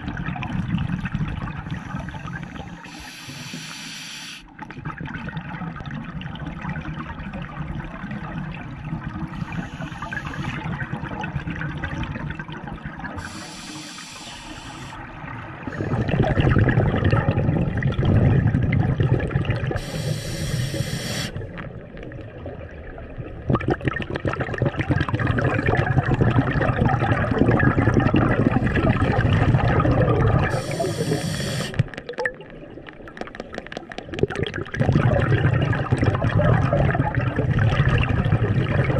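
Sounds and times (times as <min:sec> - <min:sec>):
exhaled bubbles rushing underwater: 0:00.0 - 0:03.7, 0:04.5 - 0:38.9
regulator inhale hiss: 0:01.8 - 0:04.5, 0:09.4 - 0:10.6, 0:13.2 - 0:15.0, 0:19.8 - 0:21.4, 0:30.5 - 0:31.9.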